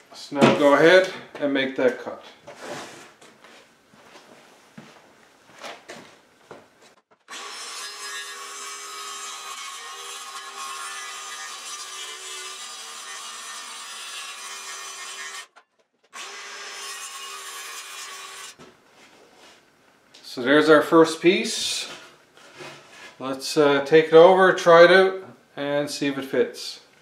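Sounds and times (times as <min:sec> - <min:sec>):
circular saw cutting wood: 0:07.3 - 0:18.6.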